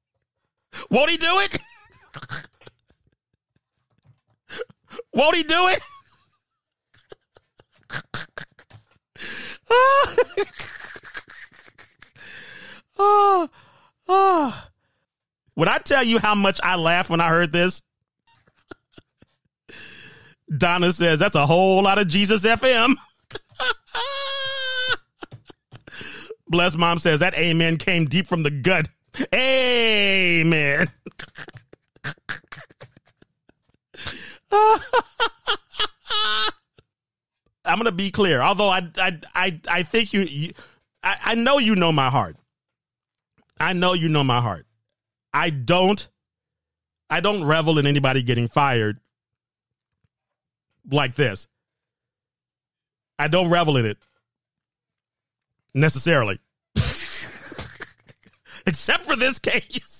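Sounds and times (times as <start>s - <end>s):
man laughing hard: 0.8s - 3.2s, 4.5s - 13.4s, 18.3s - 20.2s, 22.5s - 26.5s, 29.2s - 36.7s, 56.8s - 59.9s.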